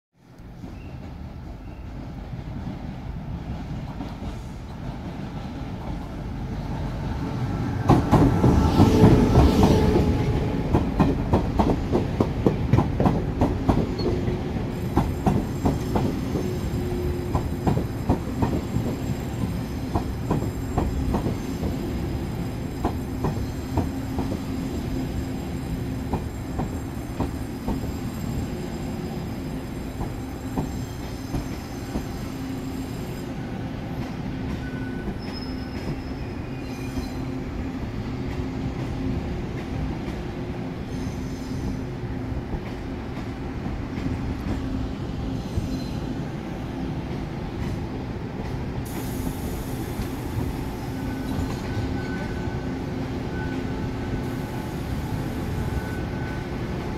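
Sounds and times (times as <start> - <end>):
train passing close by: 0.2 - 56.9
high brake squeal: 18.6 - 33.6, 34.6 - 37.5, 40.8 - 41.8, 48.9 - 56.6.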